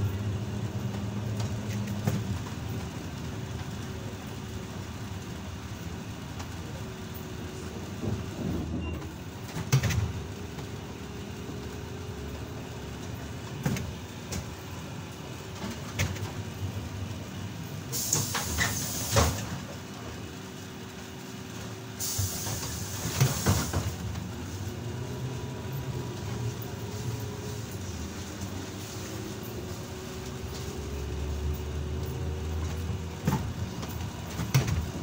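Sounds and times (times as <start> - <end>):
trolleybus hum: 0.0 - 35.0
compressed air hiss: 17.9 - 19.4, 22.0 - 23.9.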